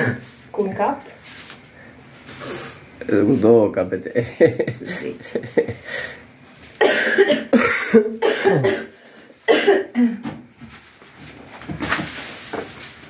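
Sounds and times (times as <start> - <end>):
person coughing: 0.0 - 0.3, 6.8 - 10.3.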